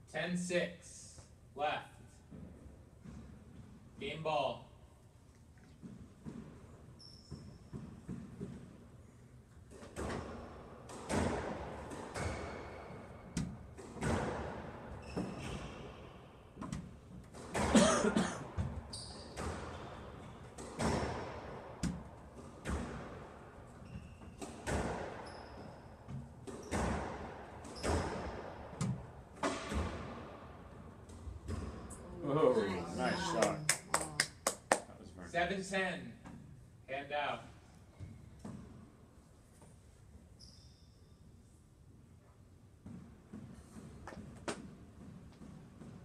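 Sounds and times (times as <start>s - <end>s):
shoes squeaking on court floor: 5.4s - 11.1s, 11.9s - 17.8s, 18.4s - 29.8s, 39.6s - 41.5s
squash ball hitting rackets and walls: 5.8s - 17.8s, 18.4s - 32.0s, 42.8s - 46.0s.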